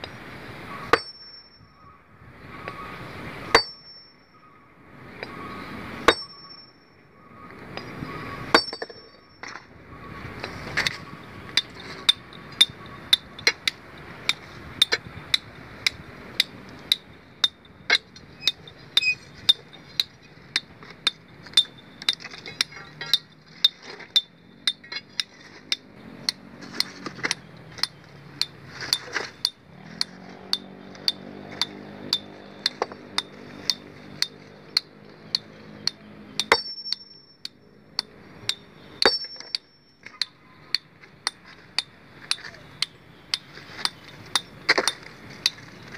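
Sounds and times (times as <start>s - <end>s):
hammer striking stone: 0.9s - 1.4s, 3.5s - 4.0s, 6.0s - 6.6s, 8.5s - 9.6s, 36.4s - 37.2s, 38.5s - 42.6s.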